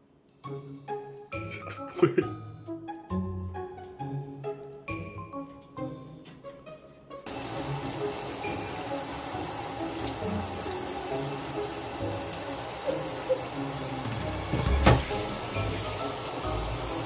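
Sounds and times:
faucet running into metal sink: 7.3s - 17.0s
dull thump: 14.5s - 15.4s.

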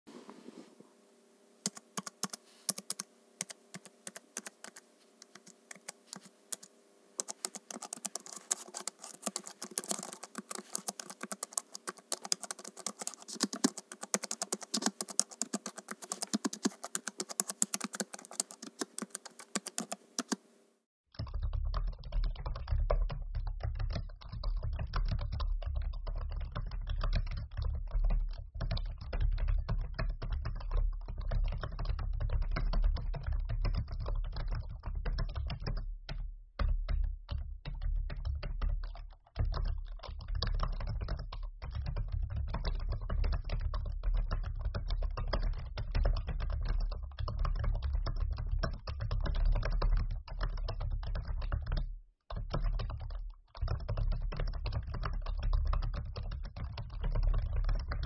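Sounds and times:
faint steady hum: 0.1s - 34.8s
laptop keyboard typing: 1.6s - 20.4s, 21.2s - 35.8s, 36.6s - 58.0s.

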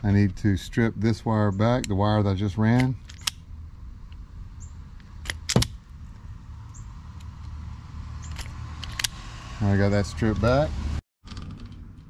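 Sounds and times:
wire stripper jaws snapping: 8.2s - 9.2s.

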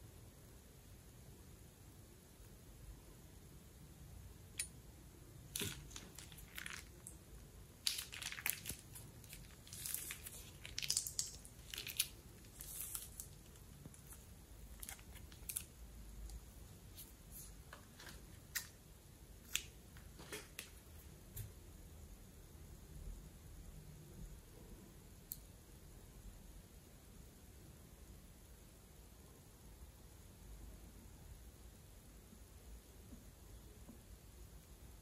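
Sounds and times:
plastic piping bag crinkling: 5.5s - 15.8s.

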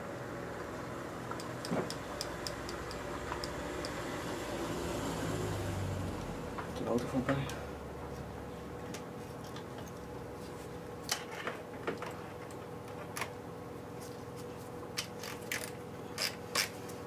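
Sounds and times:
workshop hum: 0.0s - 17.0s
passing car rumble: 3.6s - 6.8s.

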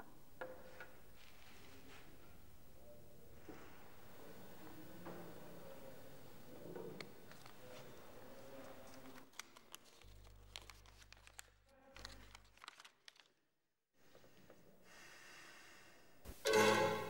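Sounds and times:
paper crinkling: 7.3s - 13.4s.

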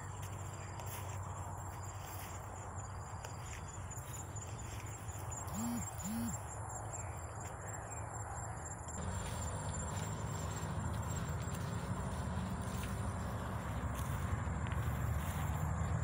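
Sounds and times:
insect whine: 0.0s - 16.0s
bird hooting calls: 5.5s - 7.2s
steady low rumble: 9.0s - 16.0s.

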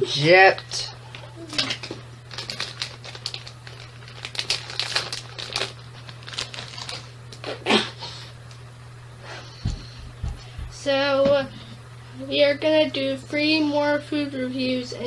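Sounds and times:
plastic wrapper crinkling: 1.1s - 7.5s.

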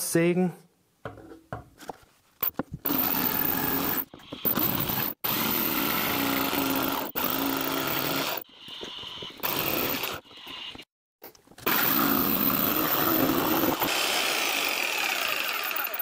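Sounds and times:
electric jigsaw cutting wood: 2.9s - 8.4s, 9.4s - 10.3s, 11.6s - 16.0s.

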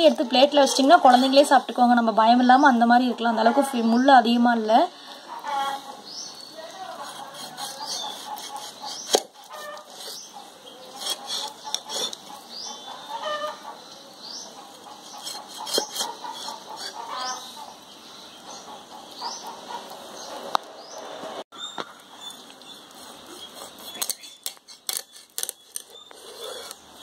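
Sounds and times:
chickens clucking: 0.0s - 4.2s, 4.9s - 20.6s.

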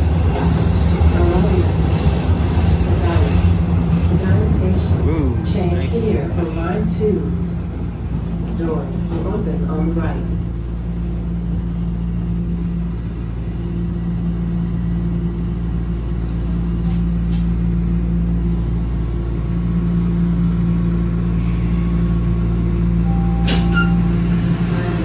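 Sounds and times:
subway train rumble: 0.0s - 25.0s.

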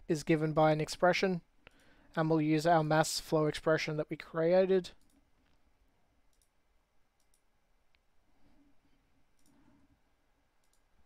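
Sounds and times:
computer mouse clicks: 6.3s - 6.6s, 7.2s - 8.0s, 9.4s - 9.6s, 10.6s - 10.9s.

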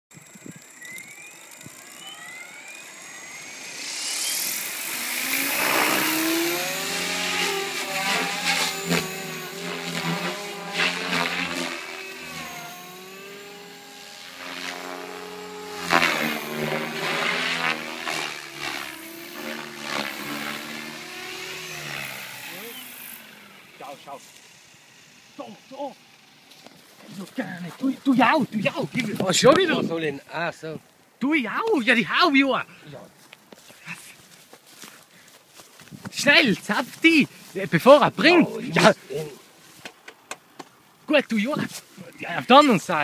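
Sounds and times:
rc helicopter motor whining: 0.1s - 30.0s.

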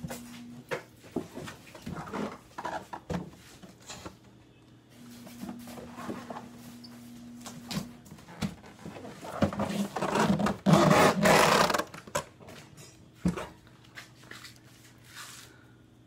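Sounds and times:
cardboard scraping and rustling: 8.2s - 12.0s.

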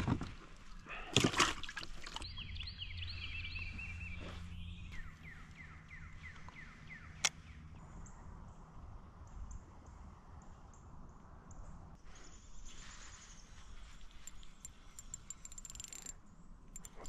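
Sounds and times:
water splashing and dripping: 0.0s - 2.3s.

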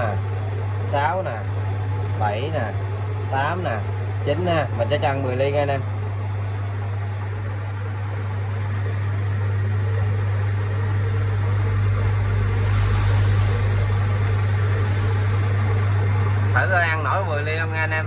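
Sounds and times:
metal lathe motor hum: 0.0s - 17.0s
lathe cutting noise: 11.0s - 17.2s.

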